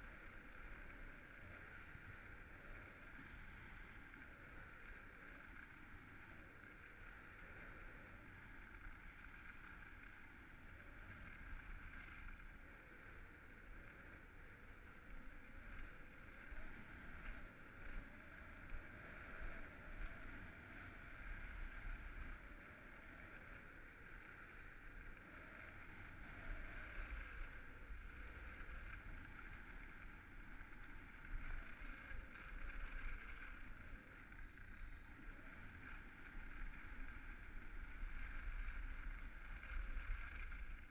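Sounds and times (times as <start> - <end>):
skis sliding over snow: 0.0 - 40.9.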